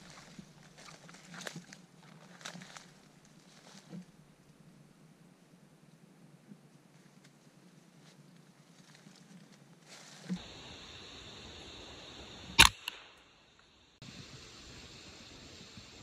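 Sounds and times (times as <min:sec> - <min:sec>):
outdoor hiss: 0:09.9 - 0:16.0
rifle shot: 0:12.6 - 0:13.2.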